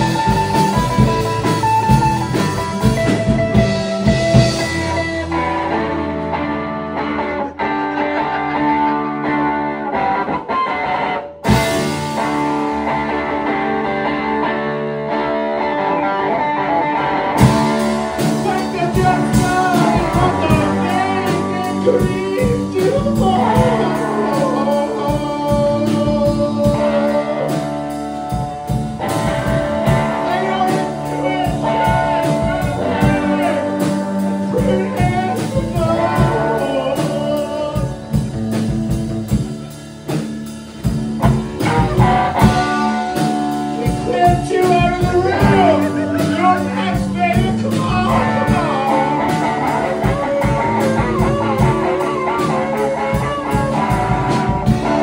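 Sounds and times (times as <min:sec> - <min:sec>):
drums and cymbals: 0:00.0 - 0:06.1, 0:11.4 - 0:13.5, 0:17.4 - 0:55.0
bass guitar: 0:00.0 - 0:55.0
electric guitar: 0:00.0 - 0:55.0
person singing: 0:11.5 - 0:55.0.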